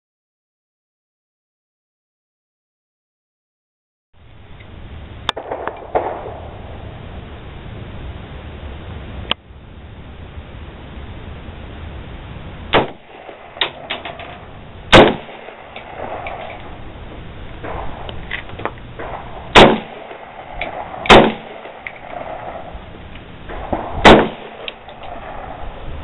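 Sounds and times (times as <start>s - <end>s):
rifle shots echoing: 5.4s - 7.0s, 12.7s - 25.8s.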